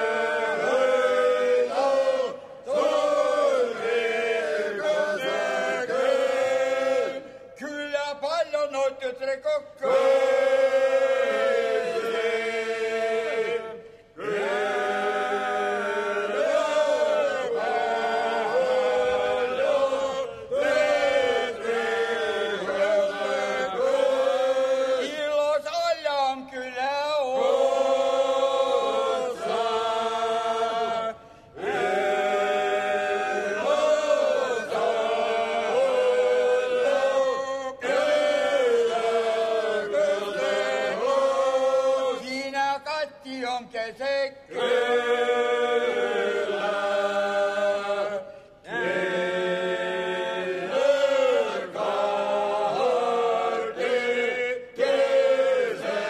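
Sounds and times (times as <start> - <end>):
male choir singing unaccompanied: 0.0 - 7.4, 9.8 - 25.7, 26.8 - 42.9, 44.5 - 56.0.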